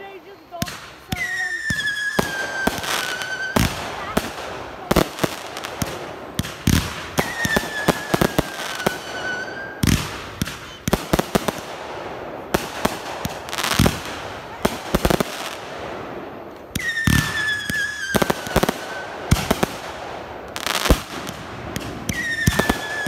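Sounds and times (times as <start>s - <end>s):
firework whistles: 0.0s - 11.8s, 16.7s - 23.0s
fireworks bangs: 0.0s - 23.0s.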